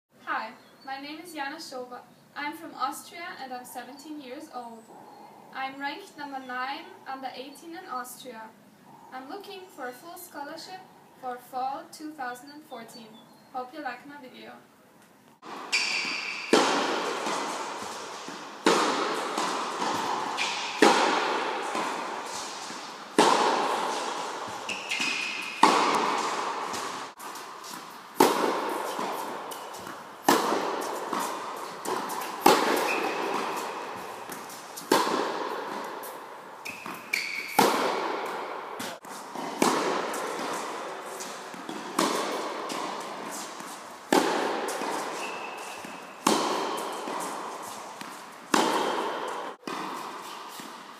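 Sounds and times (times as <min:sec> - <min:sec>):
tennis racket striking ball: 0:15.4 - 0:50.9.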